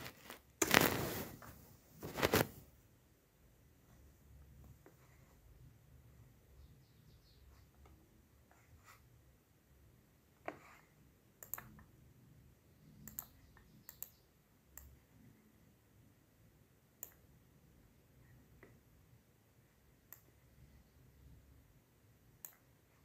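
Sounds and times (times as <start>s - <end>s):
computer mouse clicks: 11.4s - 12.0s, 13.0s - 15.0s, 17.0s - 17.3s, 20.1s - 20.4s, 22.4s - 22.7s.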